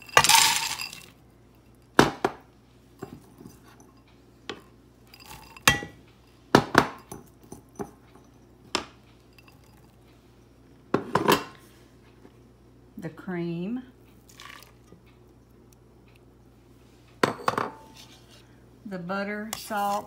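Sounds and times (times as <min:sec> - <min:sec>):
frozen corn clinking into metal pot: 0:00.0 - 0:01.1.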